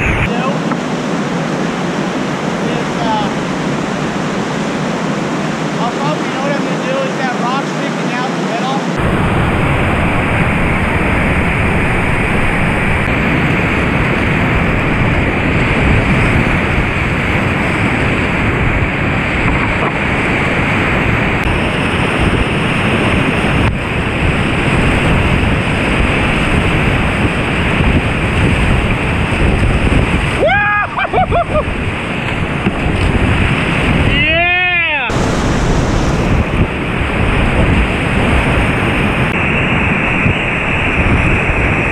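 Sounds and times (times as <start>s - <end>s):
river rapids rushing over boulders: 0.0s - 31.0s.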